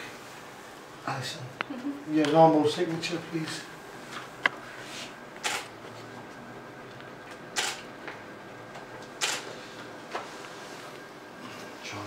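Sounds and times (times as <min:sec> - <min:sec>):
camera shutter snap: 0:05.4 - 0:05.7, 0:07.6 - 0:07.8, 0:09.2 - 0:09.4.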